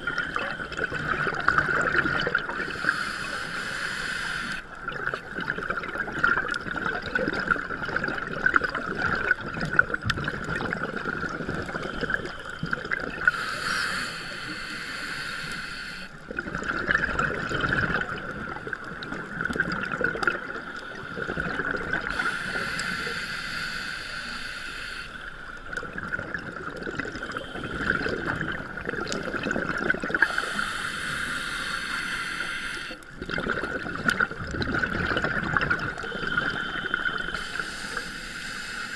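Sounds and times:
gurgling exhaled bubbles: 0:00.0 - 0:03.3, 0:04.4 - 0:13.6, 0:16.2 - 0:22.9, 0:25.5 - 0:31.7, 0:32.9 - 0:38.0
hissing regulator inhalation: 0:02.3 - 0:04.7, 0:11.6 - 0:16.2, 0:20.6 - 0:25.6, 0:27.1 - 0:29.2, 0:30.2 - 0:33.4, 0:35.7 - 0:38.9.

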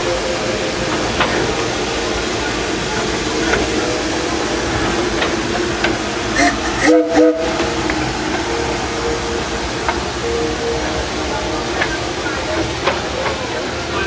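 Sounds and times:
steam hissing: 0:00.0 - 0:14.0
steam locomotive whistle blasts: 0:06.4 - 0:07.8.

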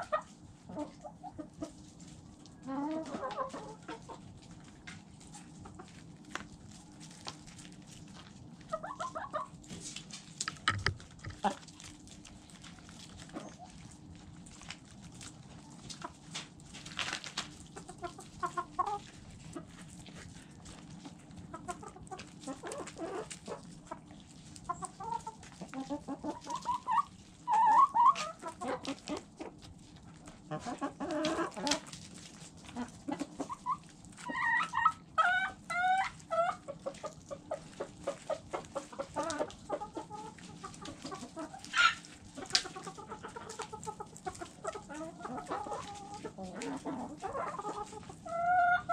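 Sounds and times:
hens clucking: 0:00.0 - 0:48.9
sharp pecking taps: 0:10.4 - 0:11.4.

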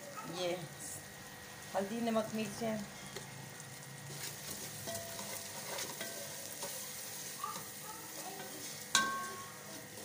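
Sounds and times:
sauce sizzling in oil: 0:00.2 - 0:10.0
wooden spatula scraping pot: 0:04.1 - 0:06.8.

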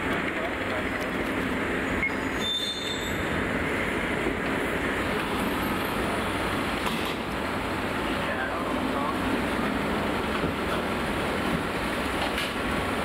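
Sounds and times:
train running noise: 0:00.0 - 0:13.0.

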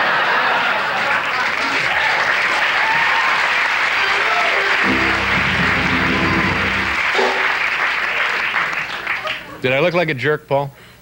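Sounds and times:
audience applauding: 0:00.0 - 0:09.6
band playing held chord: 0:04.8 - 0:07.5.

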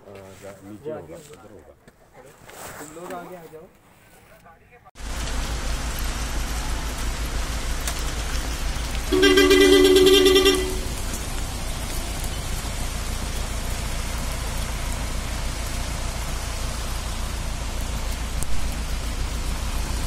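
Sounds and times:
rain and ice pellets falling: 0:05.0 - 0:20.0
two-tone vehicle horn: 0:09.1 - 0:11.2.

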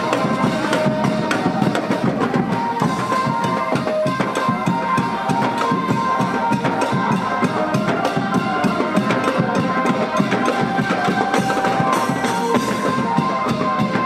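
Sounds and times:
lively music with drums: 0:00.0 - 0:14.0.

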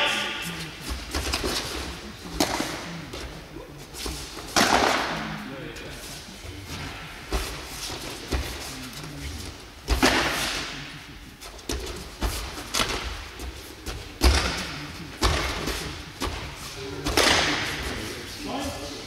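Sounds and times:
practice sabres striking: 0:04.0 - 0:05.4, 0:09.9 - 0:10.8, 0:11.5 - 0:18.0.

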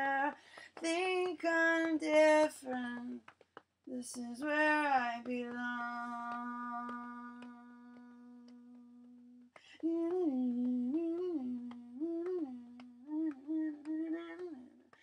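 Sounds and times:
faint ticks: 0:00.0 - 0:15.0
person humming melody: 0:05.6 - 0:14.9.

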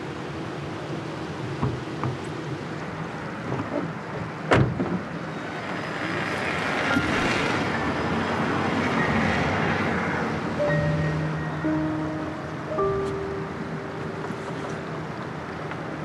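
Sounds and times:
car passing by: 0:05.4 - 0:12.3.

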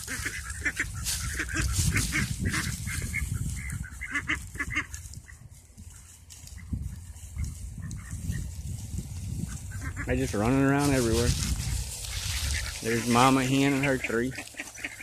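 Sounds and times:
ducks quacking: 0:00.0 - 0:15.0.

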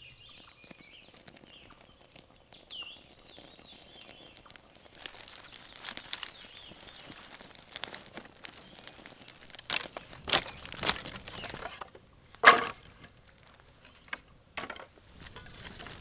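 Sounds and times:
twigs snapping: 0:00.0 - 0:16.0
wood knocking together: 0:09.7 - 0:13.2, 0:14.0 - 0:15.5.

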